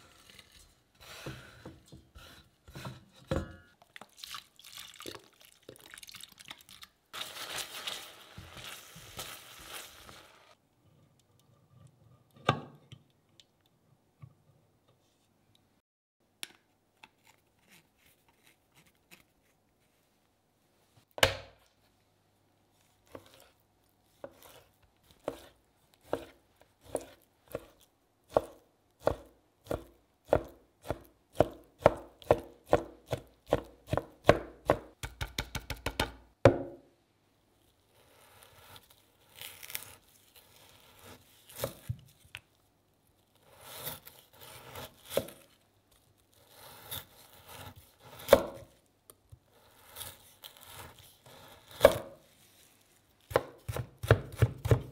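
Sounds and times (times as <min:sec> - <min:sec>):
knife chopping on plastic board: 0:24.2 - 0:36.8, 0:47.4 - 0:48.7, 0:51.7 - 0:52.2, 0:53.3 - 0:54.9
knife slicing meat: 0:43.4 - 0:45.5, 0:46.3 - 0:48.8, 0:49.6 - 0:52.0.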